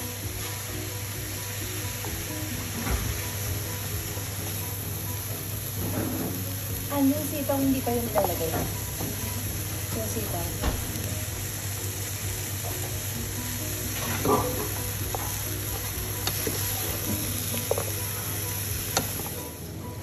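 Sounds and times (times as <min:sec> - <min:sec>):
food sizzling in a pot: 0:00.0 - 0:20.0
wooden spoon stirring: 0:13.9 - 0:19.5.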